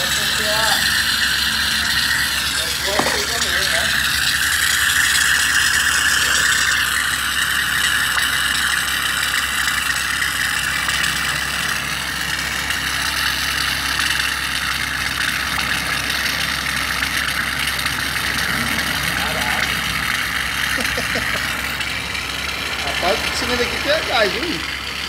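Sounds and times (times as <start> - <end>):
gas hissing out of cylinder: 0.0 - 16.8.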